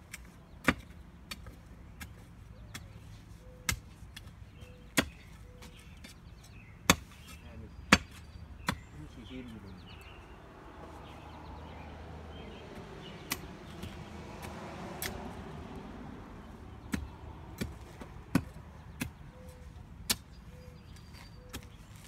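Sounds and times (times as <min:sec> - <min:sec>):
digging tool chopping soil: 0:00.1 - 0:06.2, 0:06.8 - 0:08.9, 0:12.8 - 0:15.7, 0:16.4 - 0:22.0.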